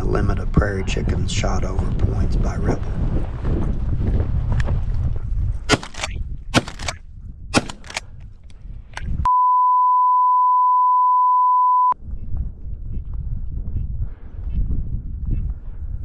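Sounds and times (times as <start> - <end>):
wind on microphone: 0.0 - 9.3, 12.0 - 16.0
shotgun shots: 5.7 - 7.0, 7.6 - 8.0
censor bleep: 9.3 - 12.0.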